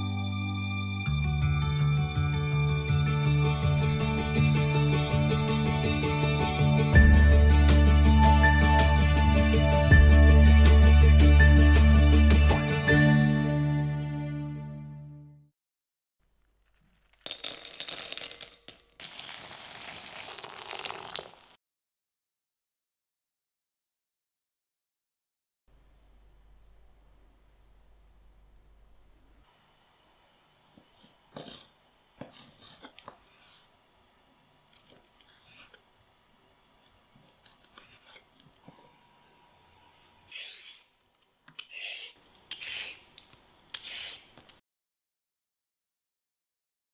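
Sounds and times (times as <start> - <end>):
knife cutting mushrooms: 3.8 - 6.6, 30.9 - 33.7, 37.3 - 38.4, 40.3 - 40.9, 41.5 - 44.6
water pouring into glass bowl: 3.9 - 6.3, 19.0 - 21.6.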